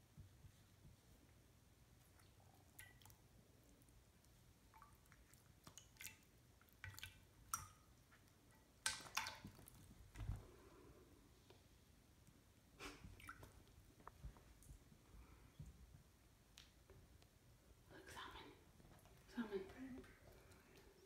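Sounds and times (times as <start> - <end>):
water dripping: 2.0 - 10.4, 12.8 - 14.8.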